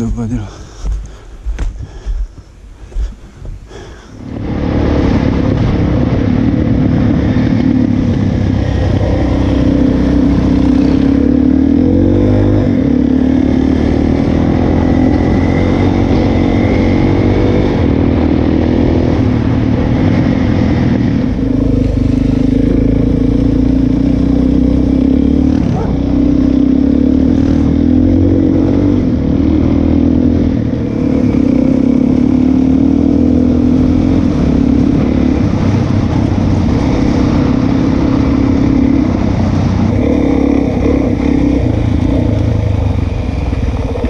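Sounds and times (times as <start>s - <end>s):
dirt bike engine revving: 4.3s - 44.0s.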